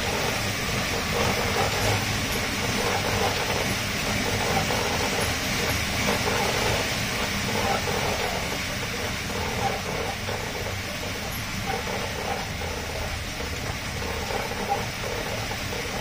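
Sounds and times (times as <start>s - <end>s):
treadmill rolling clatter: 0.0s - 16.0s.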